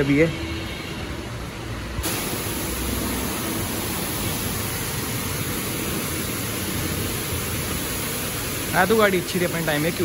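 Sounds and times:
pressure washer spraying water: 2.0s - 10.0s.

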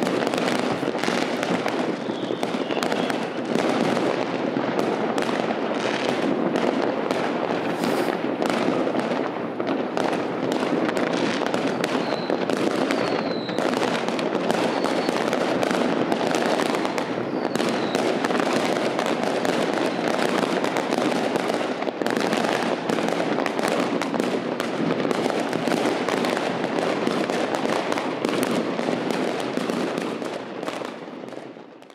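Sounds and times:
fireworks bangs and crackling: 0.0s - 31.9s
firework whistles: 0.4s - 3.5s, 7.6s - 8.3s, 11.2s - 15.5s, 16.1s - 18.4s, 19.7s - 20.4s.

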